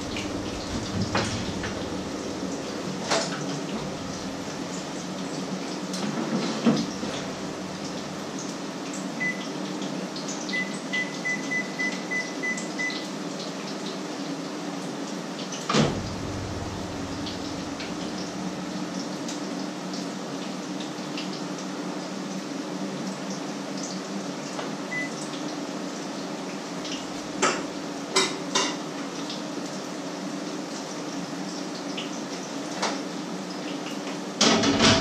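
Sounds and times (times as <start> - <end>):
low steady hum: 0.0 - 5.6, 15.7 - 19.0
kitchenware clatter: 27.4 - 28.8, 34.4 - 35.0.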